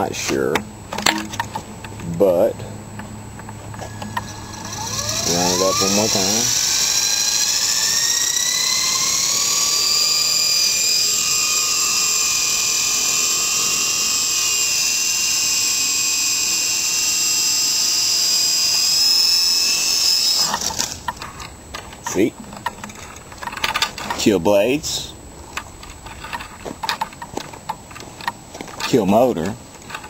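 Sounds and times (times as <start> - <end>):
rc helicopter motor whine: 3.0 - 21.6.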